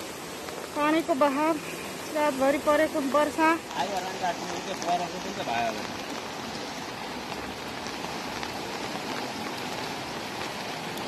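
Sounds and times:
floodwater rushing over pavement: 0.0s - 11.0s.

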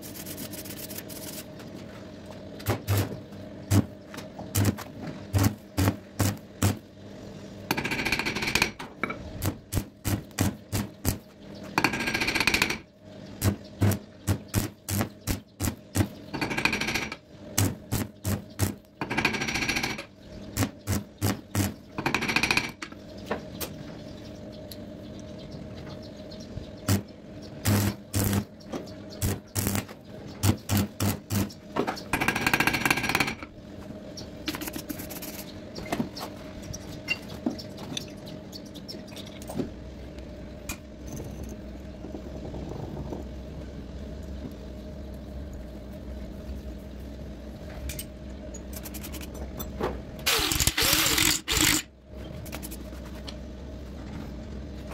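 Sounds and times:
welding arc crackling: 4.5s - 6.8s, 9.4s - 11.2s, 13.4s - 16.1s, 17.0s - 18.9s, 20.6s - 21.8s, 26.9s - 28.5s, 29.2s - 31.6s.

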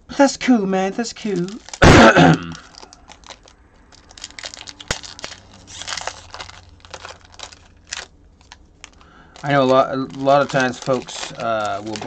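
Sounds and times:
foil wrapper crinkling: 1.1s - 12.0s.

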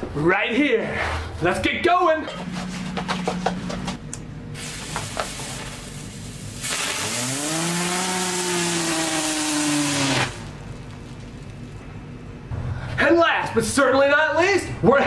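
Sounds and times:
spinner firework hissing and whining: 4.6s - 11.5s.

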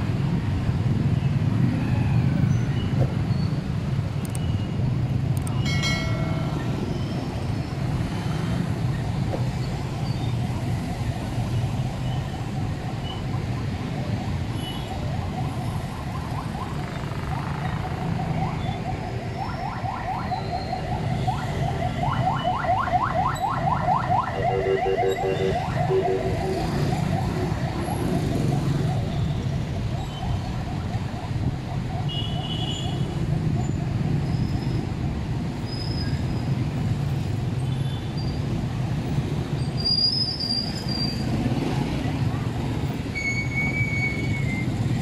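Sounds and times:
street traffic rumble: 0.0s - 45.0s
car alarm whooping: 22.4s - 28.0s.

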